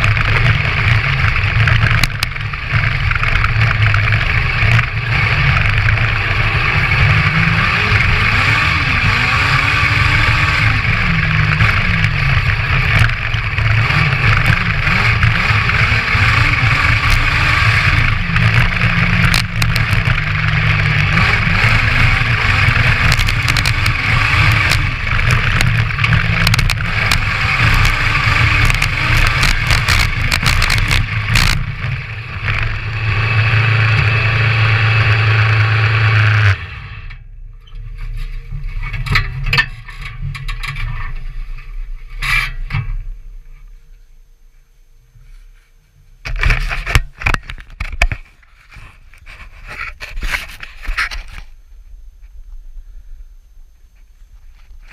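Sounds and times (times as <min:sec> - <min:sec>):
motorcycle engine revving: 0:00.0 - 0:37.3.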